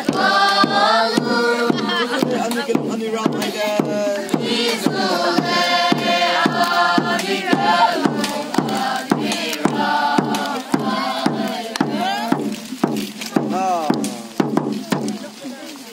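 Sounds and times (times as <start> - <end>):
children singing together: 0.0 - 2.8, 3.4 - 12.4
drum beating steadily: 0.0 - 15.9.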